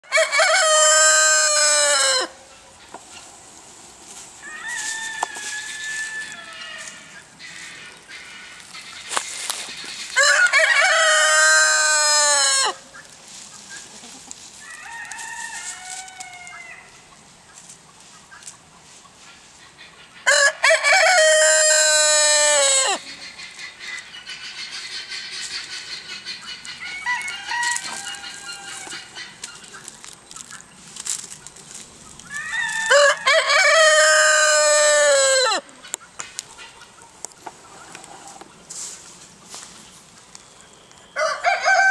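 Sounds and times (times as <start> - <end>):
rooster crowing: 0.0 - 2.4, 4.4 - 7.2, 10.2 - 12.8, 14.6 - 17.0, 20.3 - 23.0, 26.8 - 29.1, 32.3 - 35.6, 41.2 - 41.9.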